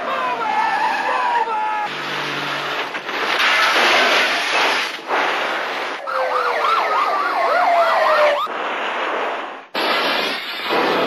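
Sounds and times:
police siren warbling: 0:06.0 - 0:08.5.

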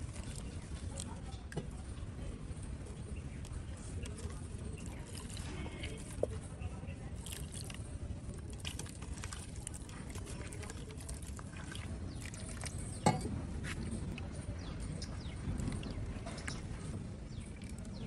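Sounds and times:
hand squelching wet batter: 0:03.0 - 0:18.0
water pouring: 0:07.2 - 0:13.2.

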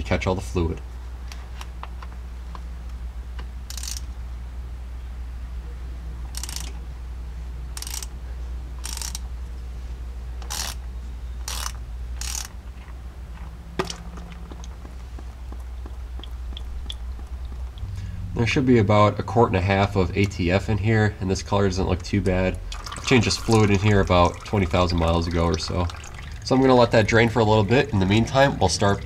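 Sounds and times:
steady low hum: 0:00.0 - 0:29.0
hand ratchet ratcheting: 0:03.7 - 0:04.1, 0:06.3 - 0:06.8, 0:07.8 - 0:08.1, 0:08.8 - 0:09.2, 0:10.4 - 0:10.8, 0:11.4 - 0:12.6.

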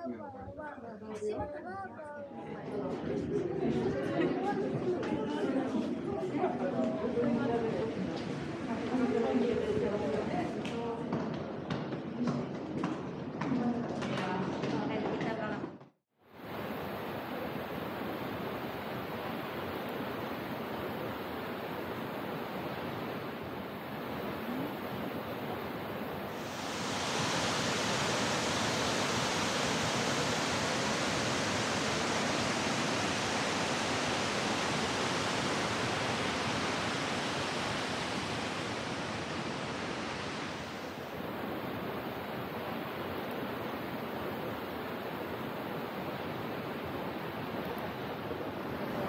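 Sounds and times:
waterfall rushing: 0:18.2 - 0:42.0.

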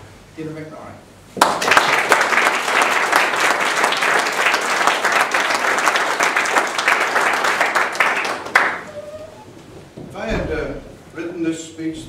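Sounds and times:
audience applauding: 0:01.4 - 0:09.4.

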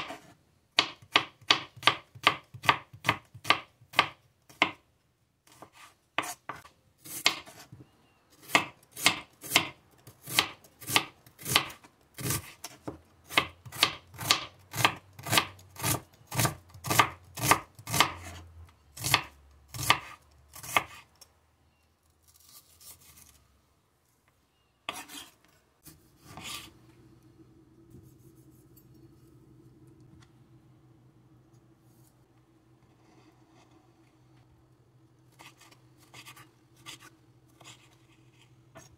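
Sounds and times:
knife slicing on cutting board: 0:24.9 - 0:26.8.

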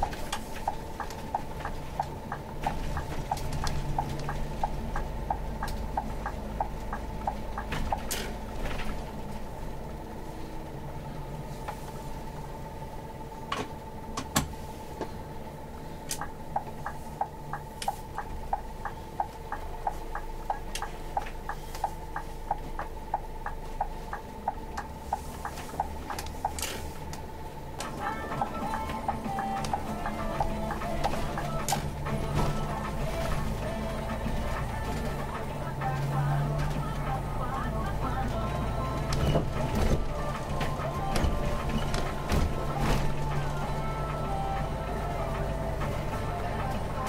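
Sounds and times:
even ticking clicks: 0:00.0 - 0:09.1, 0:16.1 - 0:27.2, 0:27.8 - 0:42.6
bus engine and road rumble: 0:00.0 - 0:47.0
faint steady whine: 0:00.0 - 0:47.0.

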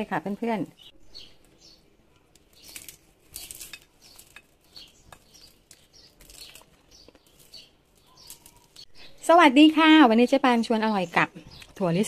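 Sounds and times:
peanut brittle crackling and crunching: 0:00.9 - 0:08.9.

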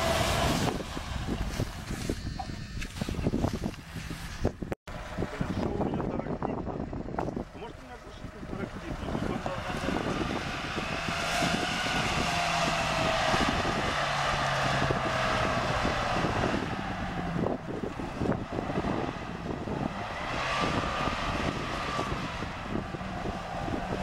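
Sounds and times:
engine revving under load: 0:00.0 - 0:03.3, 0:07.2 - 0:24.0
reed stalks crackling and brushing: 0:00.2 - 0:04.6.

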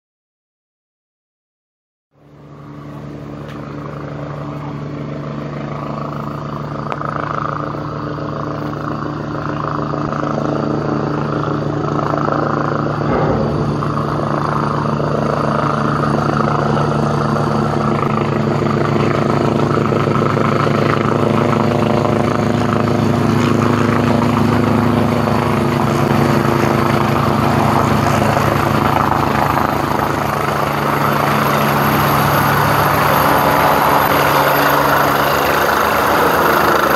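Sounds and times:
helicopter rotor drone: 0:02.2 - 0:36.9.

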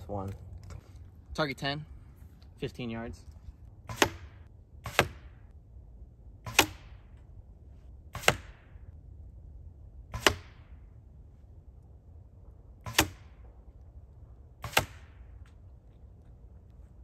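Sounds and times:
arrow smacking into target: 0:03.9 - 0:05.4, 0:06.5 - 0:07.0, 0:08.2 - 0:08.7, 0:10.1 - 0:10.6, 0:12.9 - 0:13.4, 0:14.6 - 0:15.2.

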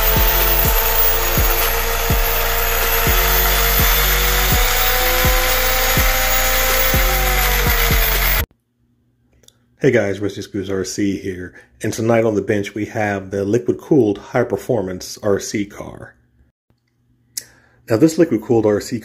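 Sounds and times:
background music with low beat: 0:00.0 - 0:08.4
gritty noise texture: 0:00.0 - 0:08.5.

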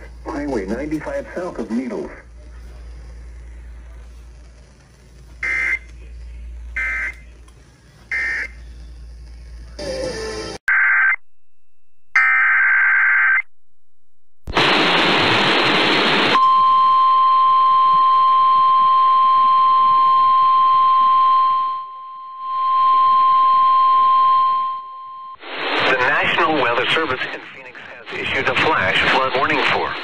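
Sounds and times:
radio static hiss: 0:00.0 - 0:09.8, 0:14.5 - 0:16.4, 0:25.4 - 0:30.0
buzzing digital data squawks: 0:05.4 - 0:05.9, 0:06.8 - 0:07.2, 0:08.1 - 0:10.0
steady warning alarm tone: 0:05.4 - 0:05.9, 0:06.8 - 0:07.2, 0:08.1 - 0:08.6.

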